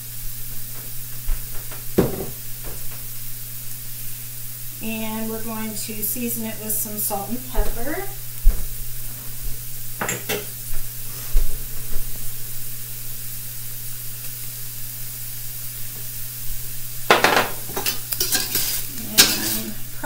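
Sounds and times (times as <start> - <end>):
shrimp sizzling in a skillet: 0.0 - 20.0
utensil scraping a pan: 17.7 - 20.0.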